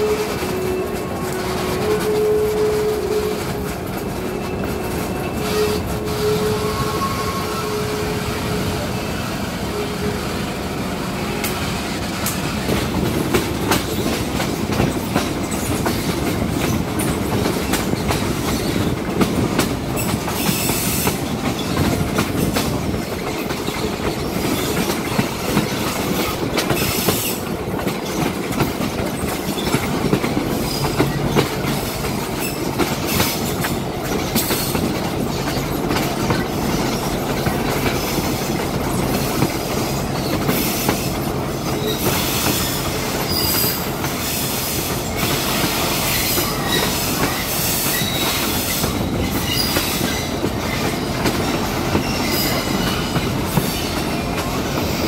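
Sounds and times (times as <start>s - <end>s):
high wheel squeals: 0.0s - 10.2s, 39.8s - 51.1s, 51.8s - 54.2s
train wheels rumbling on rails: 0.0s - 55.0s
wheels clicking over rail joints: 11.4s - 55.0s.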